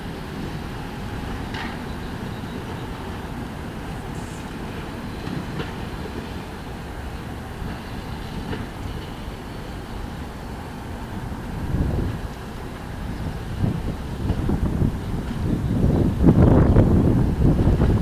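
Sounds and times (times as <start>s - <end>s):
tram running rumble: 0.0s - 18.0s
wheels clicking over rail joints: 0.0s - 18.0s
faint high wheel squeal: 1.5s - 3.3s.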